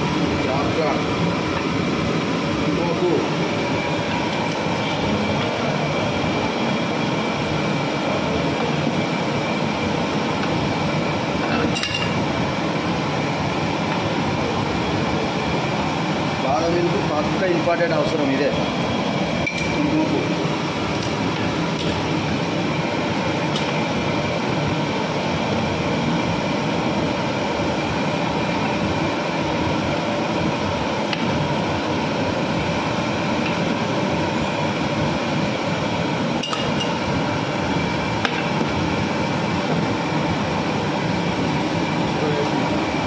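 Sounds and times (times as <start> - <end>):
metal rod clinking on pot: 19.4 - 19.8, 36.4 - 37.0.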